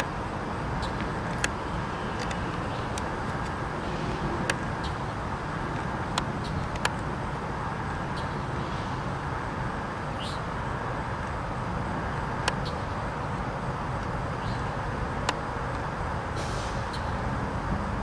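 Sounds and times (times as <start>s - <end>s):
freight train low rumble: 0.0s - 18.0s
sharp clicks: 0.8s - 3.6s, 6.1s - 7.1s.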